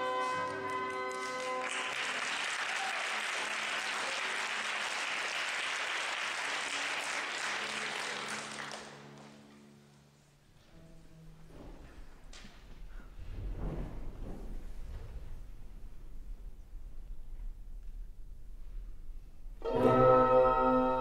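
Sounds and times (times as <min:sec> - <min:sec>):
audience applause: 0:00.0 - 0:09.4
orchestra holding tuning note: 0:19.6 - 0:21.0.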